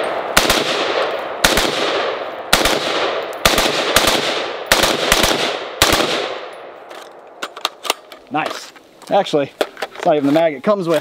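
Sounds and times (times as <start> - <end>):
gunshot echo: 0.0 - 6.5
rifle shots: 0.0 - 6.7.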